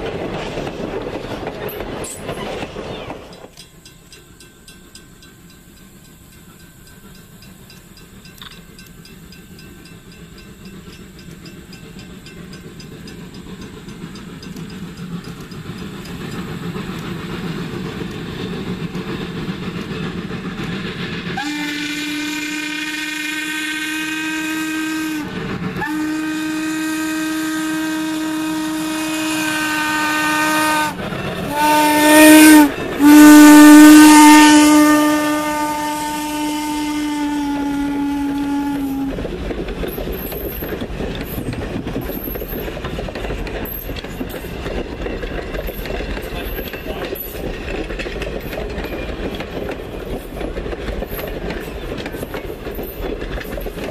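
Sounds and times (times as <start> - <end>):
coaches rumbling on rails: 0.0 - 53.9
steam locomotive approaching: 0.0 - 53.9
steam whistle blasts: 21.3 - 39.2.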